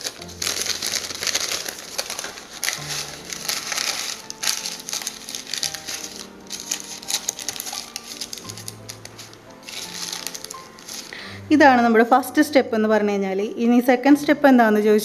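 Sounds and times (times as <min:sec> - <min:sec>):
baking paper crinkling: 0:00.0 - 0:11.3
faint background music: 0:00.0 - 0:15.0.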